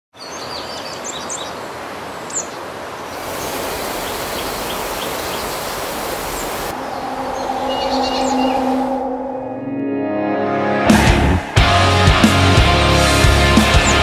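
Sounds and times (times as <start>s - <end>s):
creek running: 0.2s - 8.7s
small birds chirping: 0.2s - 8.8s.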